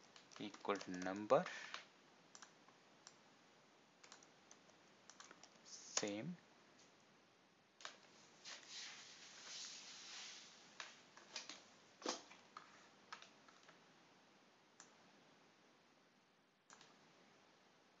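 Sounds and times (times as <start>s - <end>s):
computer keyboard keystrokes: 0.0s - 3.2s, 4.0s - 6.2s, 11.2s - 13.8s, 16.7s - 17.0s.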